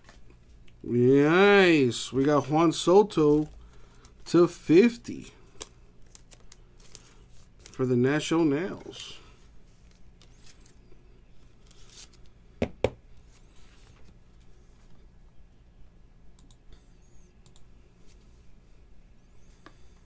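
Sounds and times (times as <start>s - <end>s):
low electrical hum: 0.0s - 20.0s
cards sliding and rustling: 5.5s - 7.8s, 9.7s - 12.4s.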